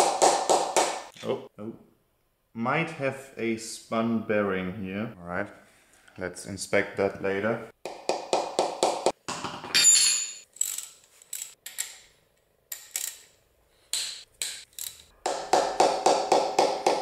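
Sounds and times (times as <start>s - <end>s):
ratchet wrench clicking: 10.6s - 12.0s, 12.7s - 13.3s, 13.9s - 15.1s.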